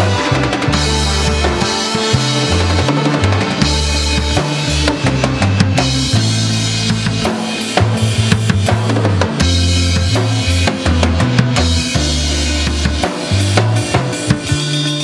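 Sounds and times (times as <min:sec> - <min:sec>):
synth bass line: 0:00.0 - 0:07.3
cymbals: 0:00.0 - 0:11.0
bass drum: 0:00.0 - 0:15.0.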